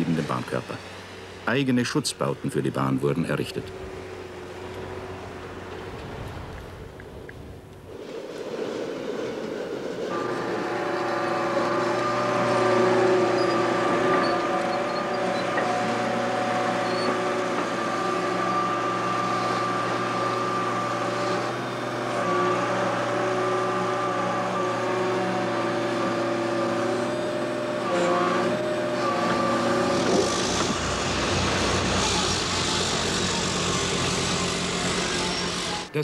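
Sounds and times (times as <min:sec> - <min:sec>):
heavy machinery engine drone: 0:00.0 - 0:36.0
whining tones: 0:03.6 - 0:36.0.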